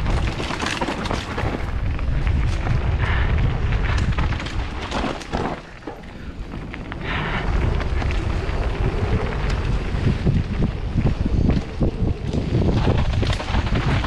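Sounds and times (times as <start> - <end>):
knocks and rattles: 0.0 - 1.8, 3.9 - 6.2, 12.2 - 14.0
wind buffeting microphone: 0.0 - 14.0.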